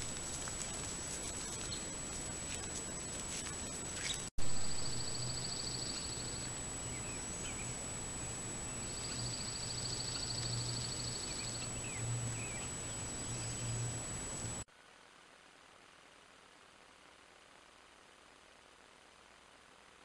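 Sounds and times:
high electronic whine: 0.0 - 14.7
steady hiss: 0.0 - 20.0
faint bird chirps: 3.9 - 7.8, 8.6 - 13.9.

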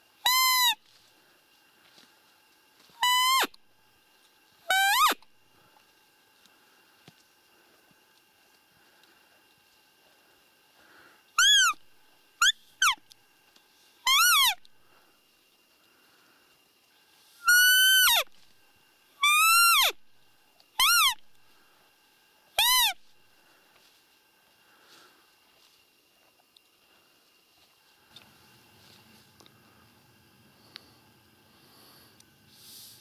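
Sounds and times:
high squeaky whistles: 0.3 - 0.8, 3.0 - 3.6, 4.7 - 5.2, 11.4 - 11.8, 14.1 - 14.6, 17.4 - 18.3, 19.2 - 20.0, 20.8 - 21.2, 22.6 - 23.0.

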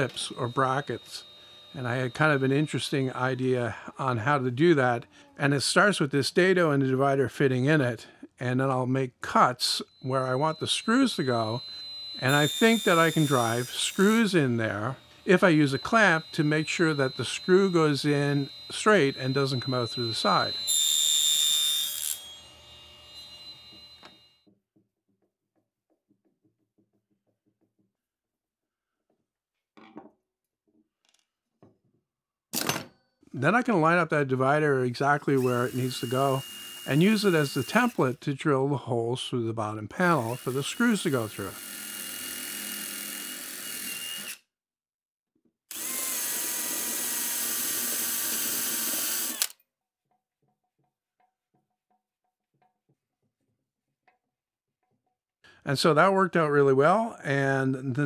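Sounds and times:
drill boring through metal: 0.0 - 4.0, 9.6 - 24.4, 35.2 - 38.2, 40.0 - 44.4, 45.7 - 49.6
table saw blade whine: 0.0 - 4.9, 9.2 - 24.5, 35.0 - 38.2, 40.0 - 44.4, 45.7 - 49.6
screwdriver ticks: 49.3 - 49.6.

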